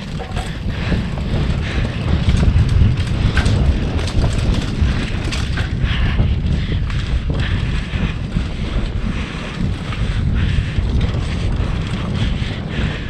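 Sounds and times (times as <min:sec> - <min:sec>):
tyres on dirt: 0:00.0 - 0:05.8
bike rattling and clicking: 0:00.0 - 0:13.0
wind buffeting microphone: 0:00.0 - 0:13.0.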